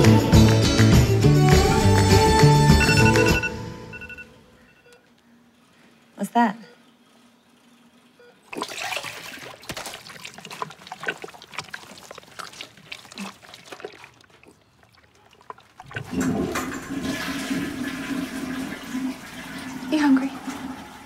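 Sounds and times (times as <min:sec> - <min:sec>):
toilet flushing: 0:08.5 - 0:14.4, 0:15.4 - 0:21.0
liquid splashing into toilet bowl: 0:08.5 - 0:21.0.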